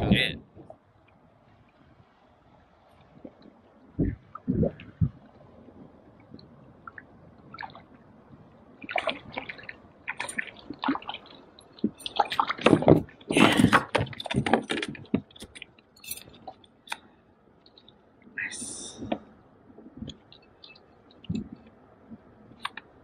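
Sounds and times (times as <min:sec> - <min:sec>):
water splashing: 0:06.1 - 0:16.7.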